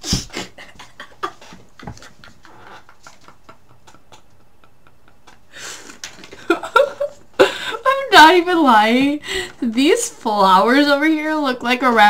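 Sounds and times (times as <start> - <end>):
muffled giggling: 0.1 - 7.7.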